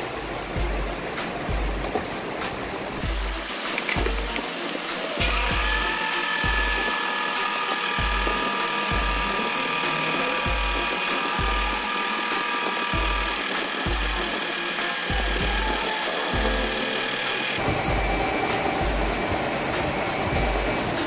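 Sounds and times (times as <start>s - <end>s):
stand mixer motor whining: 0.0s - 21.0s
background music with bass beat: 0.2s - 7.0s, 7.9s - 12.2s, 12.8s - 21.0s.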